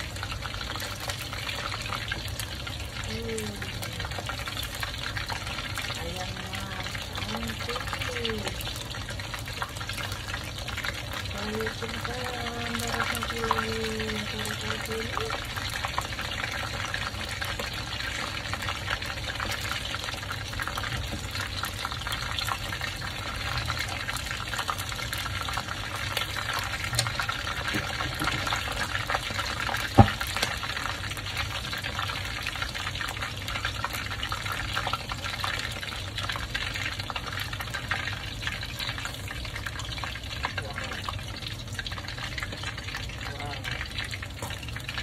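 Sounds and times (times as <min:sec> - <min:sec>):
oil sizzling and crackling: 0:00.0 - 0:45.0.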